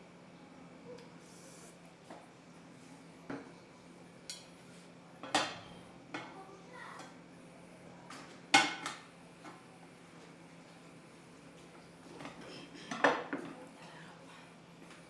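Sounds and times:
dishes and utensils clinking: 12.1 - 13.6.

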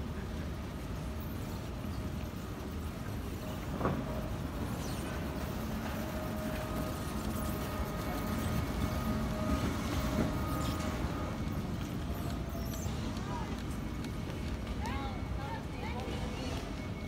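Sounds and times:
floor cleaning machine humming: 3.3 - 15.2.

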